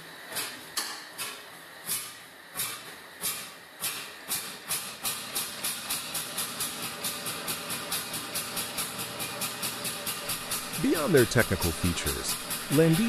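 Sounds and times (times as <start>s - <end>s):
tractor engine exhaust beats: 10.2s - 13.0s.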